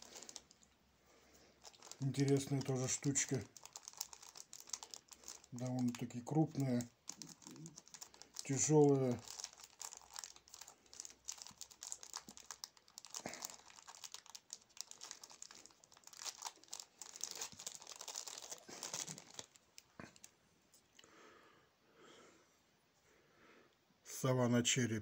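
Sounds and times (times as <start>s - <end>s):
plastic bag crinkling: 0.0s - 20.3s.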